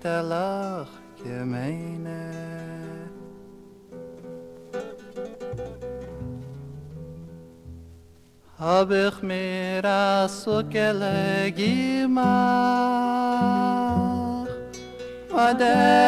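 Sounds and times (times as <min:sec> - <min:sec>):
faint guitar tone: 0:00.0 - 0:16.0
men singing together: 0:15.3 - 0:16.0.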